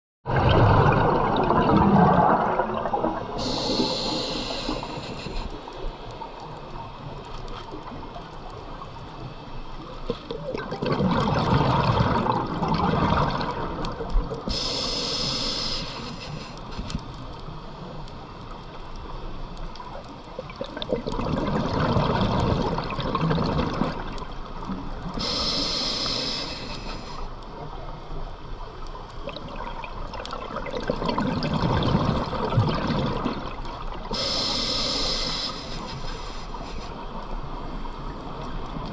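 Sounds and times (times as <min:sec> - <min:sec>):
underwater bubbles exhaled: 0:00.3 - 0:09.0, 0:09.8 - 0:18.0, 0:19.7 - 0:27.8, 0:29.2 - 0:38.9
regulator hissing inhale: 0:03.4 - 0:06.0, 0:14.5 - 0:17.3, 0:25.2 - 0:27.4, 0:34.1 - 0:37.4.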